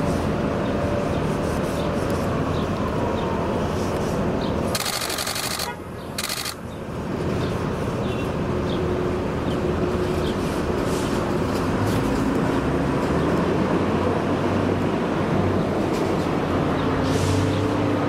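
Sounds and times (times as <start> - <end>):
rapid camera shutter clicks: 4.7 - 6.6.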